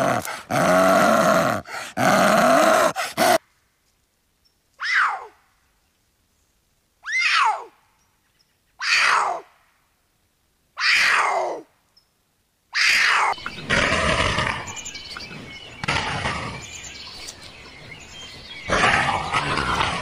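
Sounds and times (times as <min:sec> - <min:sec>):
cheetah calling: 0:00.0 - 0:03.4
puma screaming: 0:00.0 - 0:03.4, 0:07.0 - 0:07.7, 0:08.8 - 0:09.5, 0:10.8 - 0:11.6, 0:12.7 - 0:14.8, 0:18.7 - 0:20.0.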